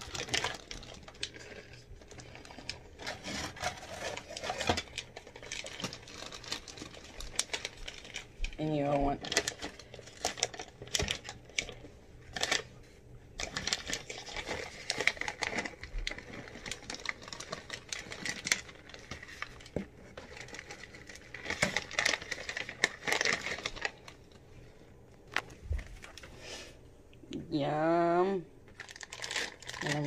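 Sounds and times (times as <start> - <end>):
chocolate chips rattling into cones: 0.0 - 12.7, 13.4 - 24.1, 28.8 - 30.0
bag crinkling: 0.0 - 12.8, 13.4 - 26.6, 28.7 - 30.0.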